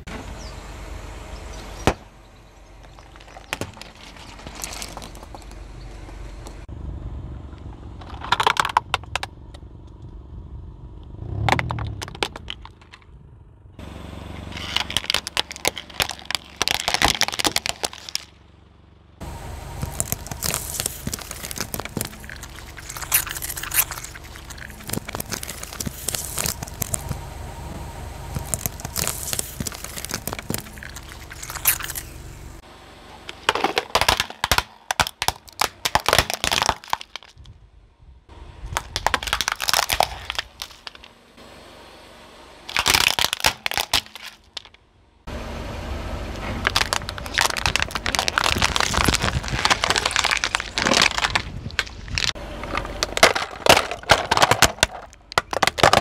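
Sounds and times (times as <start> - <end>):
tyre crushing plastic objects: 2.8 - 5.6, 8.0 - 9.3, 11.3 - 13.0, 14.4 - 18.4, 19.8 - 27.2, 28.3 - 32.2, 33.3 - 37.5, 38.7 - 41.1, 42.7 - 44.8, 46.6 - 56.0.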